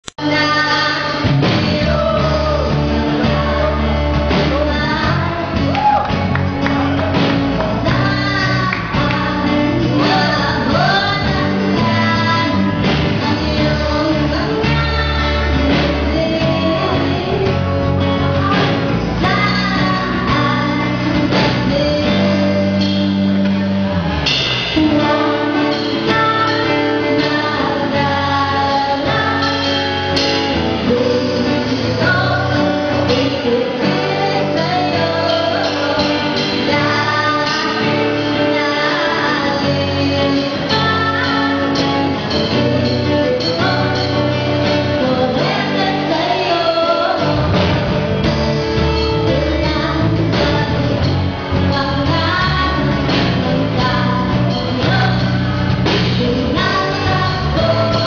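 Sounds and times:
live band playing: 0:00.1 - 0:58.0
low bass notes: 0:00.1 - 0:58.0
woman singing into a microphone: 0:00.2 - 0:06.3, 0:07.6 - 0:23.6, 0:24.7 - 0:58.0.

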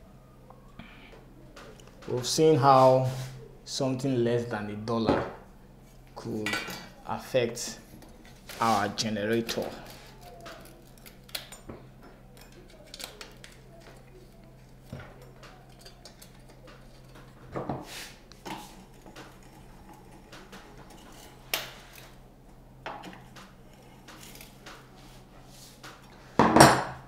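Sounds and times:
faint steady hum: 0:00.0 - 0:27.0.

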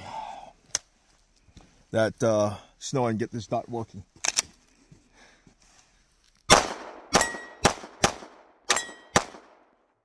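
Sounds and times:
pistol shots echoing: 0:06.5 - 0:09.8.

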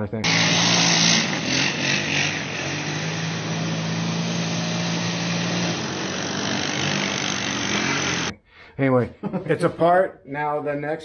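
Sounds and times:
utility vehicle engine running: 0:00.2 - 0:08.3.

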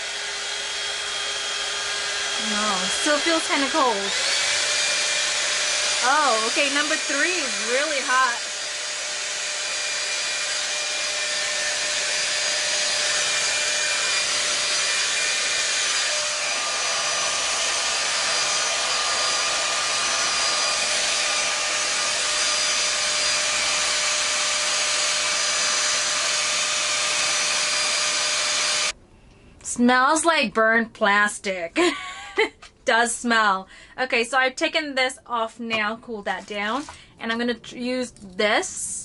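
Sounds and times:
hot air styler air rush: 0:00.0 - 0:29.0.

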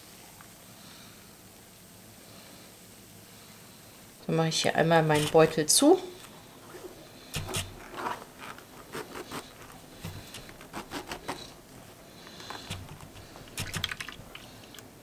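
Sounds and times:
mesh bag rustling and crinkling: 0:05.0 - 0:14.9
small crackles: 0:05.0 - 0:15.0.

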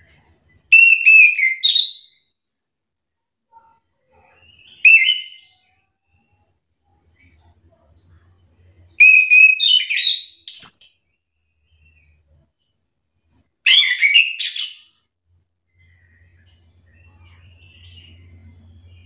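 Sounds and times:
thrush singing whistled notes: 0:00.1 - 0:02.2, 0:04.1 - 0:12.5, 0:13.2 - 0:15.1.

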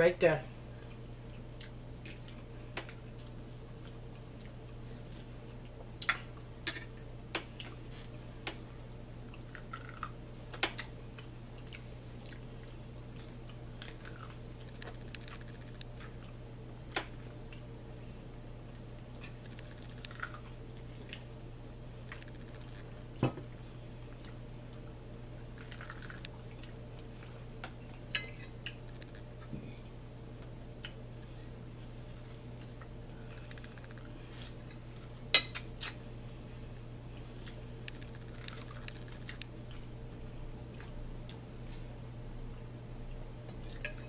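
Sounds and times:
steady low hum: 0:00.0 - 0:44.0
chewing: 0:00.8 - 0:08.6, 0:09.2 - 0:16.4, 0:18.6 - 0:21.4, 0:22.0 - 0:29.5, 0:30.4 - 0:36.0, 0:37.2 - 0:39.9, 0:40.7 - 0:41.9.

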